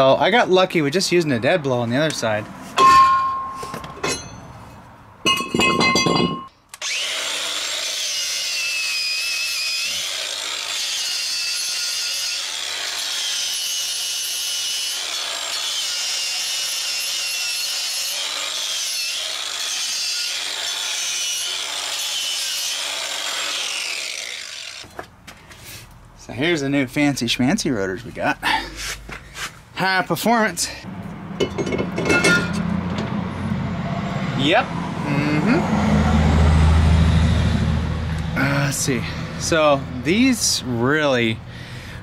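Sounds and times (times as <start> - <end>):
knock with metallic ring: 2.8 - 4.4, 5.3 - 6.5
power tool whining: 6.7 - 25.0.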